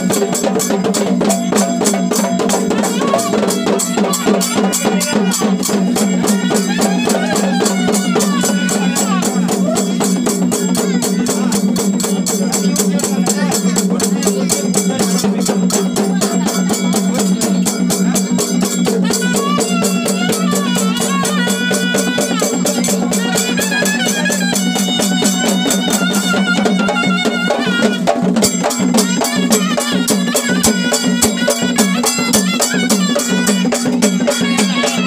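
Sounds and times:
rapid drumming: 0:00.0 - 0:35.0.

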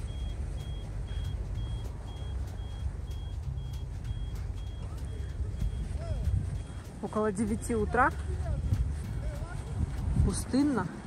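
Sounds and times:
crossing signal short high beeps: 0:00.0 - 0:08.3
low rumble: 0:00.0 - 0:11.0.

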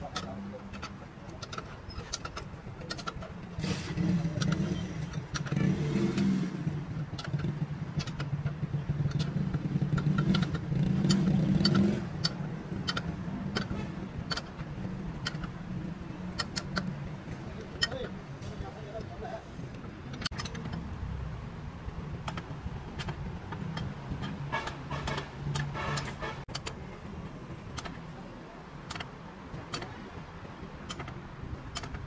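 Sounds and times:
vehicle engine running: 0:00.0 - 0:32.0
sharp clicks: 0:04.0 - 0:15.6, 0:16.3 - 0:17.0, 0:19.7 - 0:20.9, 0:22.2 - 0:26.8, 0:27.7 - 0:28.0, 0:28.8 - 0:30.0, 0:30.8 - 0:32.0.

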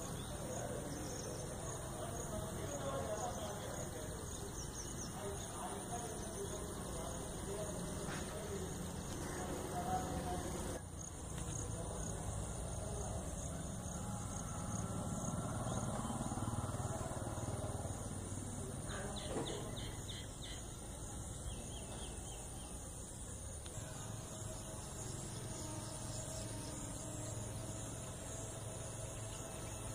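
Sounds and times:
bird chirping: 0:00.0 - 0:23.0
low steady outdoor rumble: 0:00.0 - 0:29.9.

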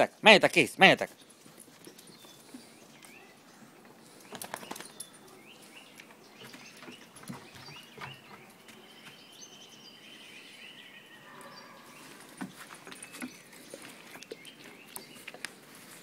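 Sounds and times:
faint high chirping calls: 0:01.2 - 0:15.9
dog claws tapping on wooden decking: 0:06.0 - 0:09.2.

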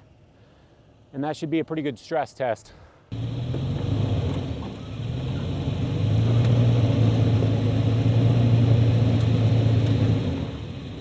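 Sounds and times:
truck engine pulling under load: 0:03.2 - 0:11.0.

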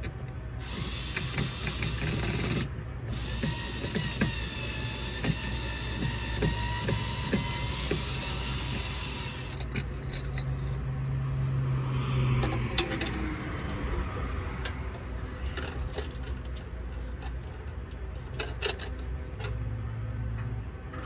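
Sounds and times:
small motor humming: 0:00.6 - 0:09.7
light metallic clicks and rattles: 0:14.6 - 0:19.6.

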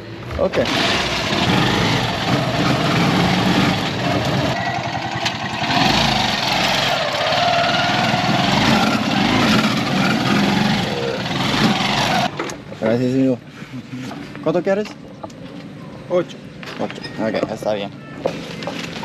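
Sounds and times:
small motorcycle engine running: 0:00.6 - 0:12.4.

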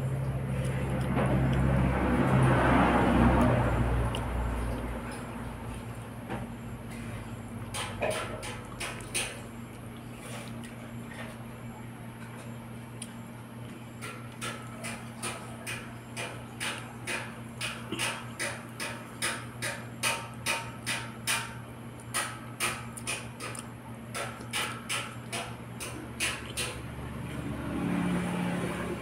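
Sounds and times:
chewing with wet mouth clicks: 0:03.4 - 0:05.8, 0:08.1 - 0:11.4, 0:12.2 - 0:13.2, 0:22.9 - 0:25.4.

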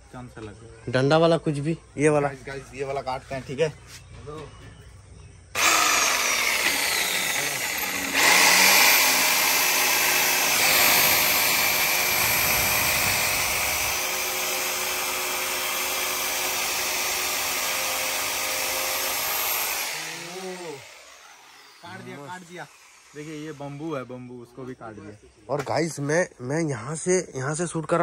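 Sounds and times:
jigsaw sawing bamboo: 0:05.6 - 0:24.1.

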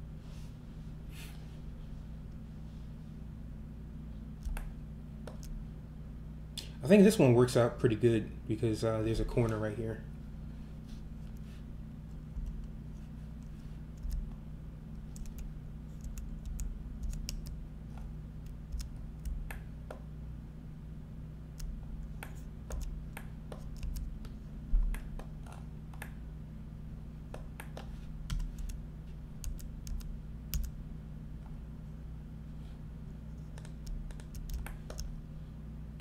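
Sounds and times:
low electrical hum: 0:00.0 - 0:36.0
keyboard and mouse clicking: 0:14.0 - 0:14.2, 0:15.1 - 0:17.6, 0:18.4 - 0:19.7, 0:21.6 - 0:24.1, 0:29.4 - 0:30.7, 0:33.4 - 0:35.1.

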